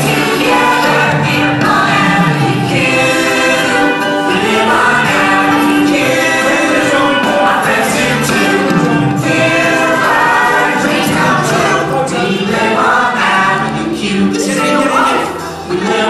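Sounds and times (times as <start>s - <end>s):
group of voices singing: 0.0s - 16.0s.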